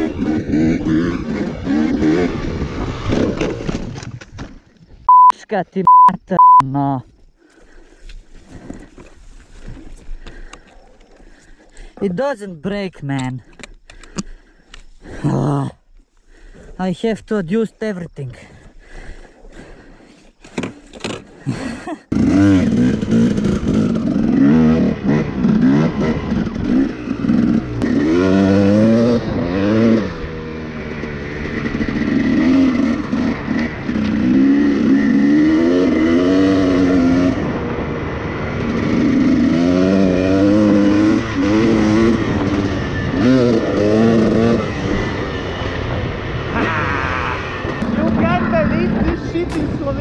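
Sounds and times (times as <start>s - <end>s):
dirt bike engine revving: 0.0s - 4.0s, 21.4s - 50.0s.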